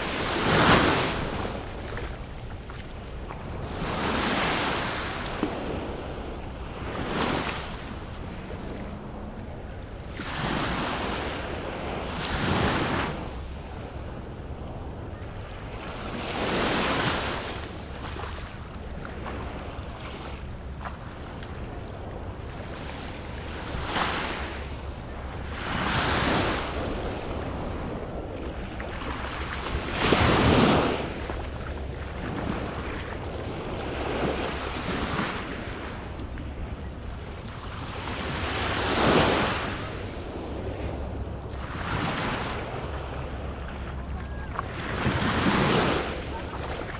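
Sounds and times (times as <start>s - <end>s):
small waves breaking on beach: 0.0s - 9.3s, 25.5s - 36.1s, 37.7s - 46.9s
wind rumble on microphone: 0.0s - 46.9s.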